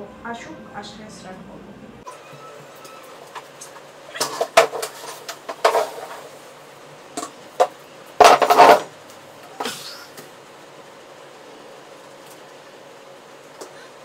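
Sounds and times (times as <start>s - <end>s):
plastic chair knocks and scrapes: 4.2s - 6.2s, 7.6s - 8.9s.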